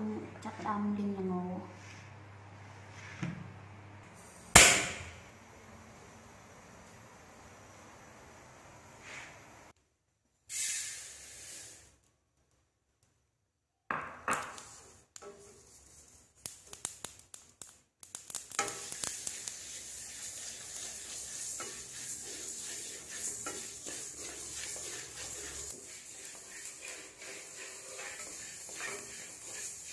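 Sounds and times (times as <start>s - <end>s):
seeds poured into a wok: 10.5s - 12.0s, 16.3s - 29.9s
wooden spatula scraping a wok: 14.5s - 16.3s, 18.5s - 29.9s.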